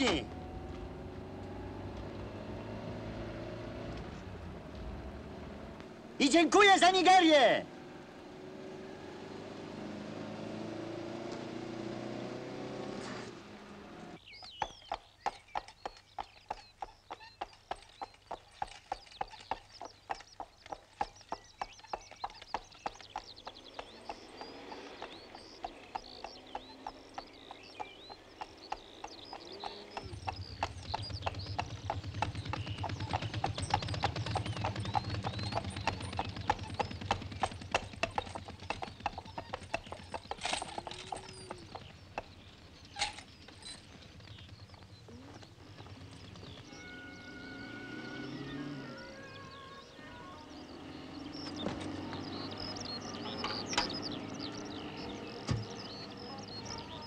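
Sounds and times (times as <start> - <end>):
horse hooves clip-clopping: 0.0 - 6.0, 14.2 - 47.5
high chirping: 14.2 - 57.0.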